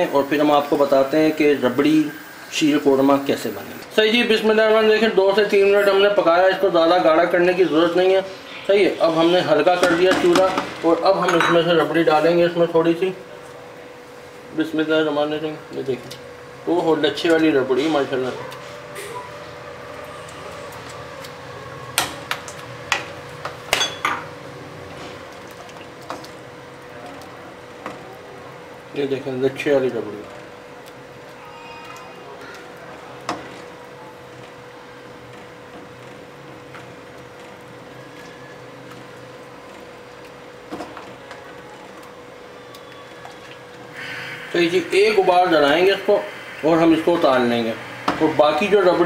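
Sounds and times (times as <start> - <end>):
faint steady hum: 10.7 - 49.0.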